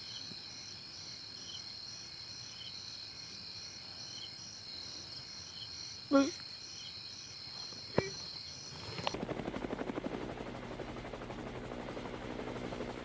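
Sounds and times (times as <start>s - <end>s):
crickets trilling: 0.0s - 9.2s
faint insect chirp: 0.0s - 9.3s.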